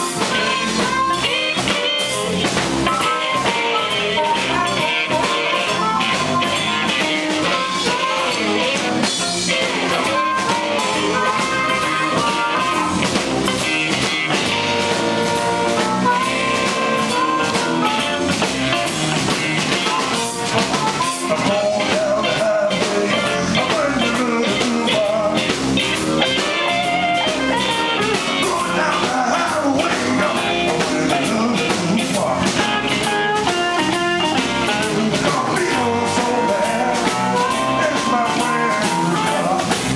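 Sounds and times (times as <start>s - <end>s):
blues harmonica: 0.0s - 39.9s
electric blues band playing: 0.0s - 39.9s
electric guitar lead: 0.0s - 39.9s.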